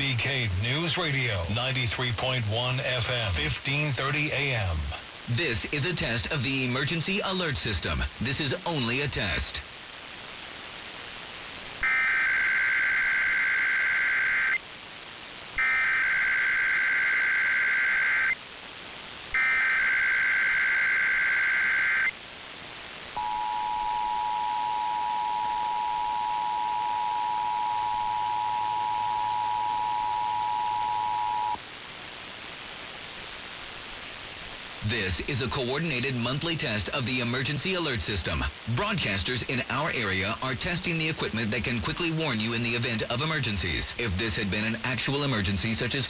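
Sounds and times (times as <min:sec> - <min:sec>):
radio static hiss: 0:00.0 - 0:46.0
digital data bursts: 0:11.8 - 0:14.6, 0:15.6 - 0:18.4, 0:19.3 - 0:22.2
two-tone attention signal: 0:23.2 - 0:31.6.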